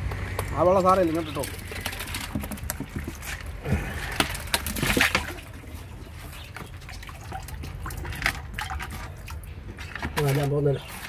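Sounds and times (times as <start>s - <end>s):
water dripping: 0.0s - 10.0s
water pouring into a tank: 0.9s - 9.6s.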